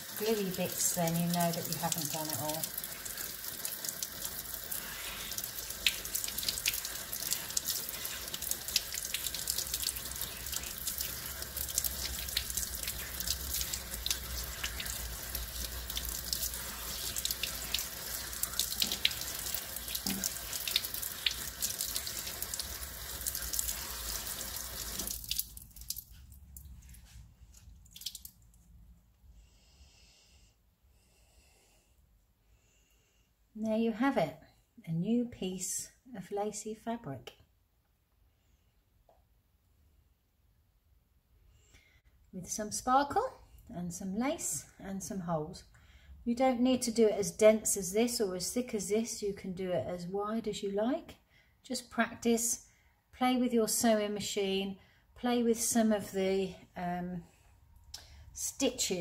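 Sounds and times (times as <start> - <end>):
tap water spattering on wet fabric: 27.9 - 28.4.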